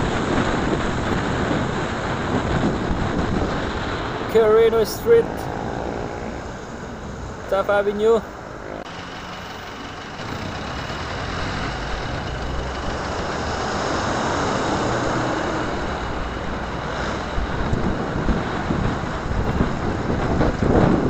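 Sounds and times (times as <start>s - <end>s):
wind gusts on microphone: 0.0s - 8.9s, 9.7s - 21.0s
traffic engines drone: 0.0s - 21.0s.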